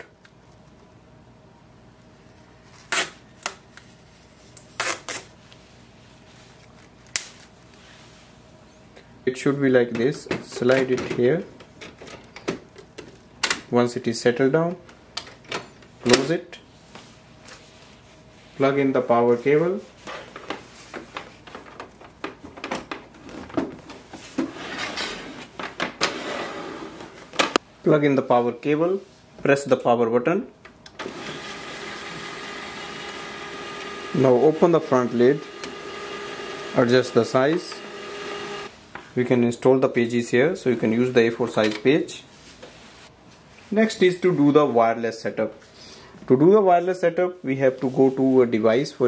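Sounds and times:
sealing strip ripping: 2.7s - 3.6s, 4.5s - 5.3s, 6.5s - 7.8s.

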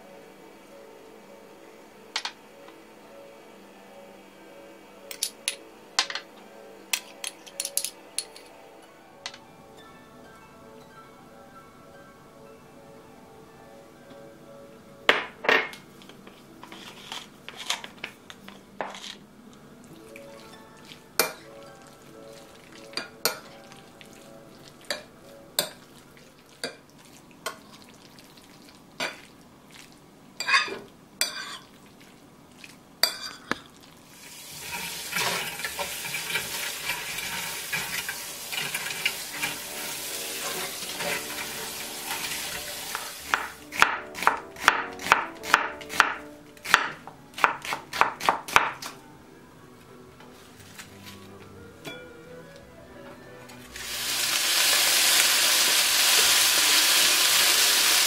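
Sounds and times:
spoon scraping glass bowl: 16.6s - 17.9s, 30.4s - 31.7s
steady hiss: 53.7s - 58.0s.

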